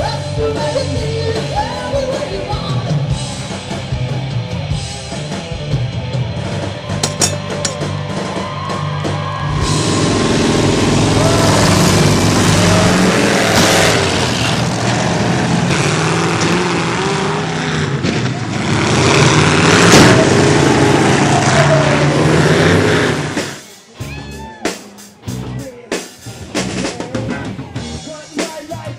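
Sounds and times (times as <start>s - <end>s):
metal crash: 7.0s - 7.8s
music with drum hits: 7.0s - 8.3s
car engines revving: 9.5s - 23.6s.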